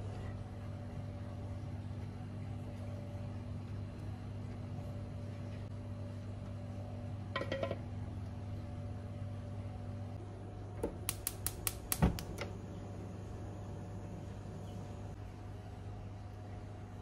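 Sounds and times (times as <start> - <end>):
mechanical hum: 0.0 - 17.0
sharp clicks: 11.0 - 12.4.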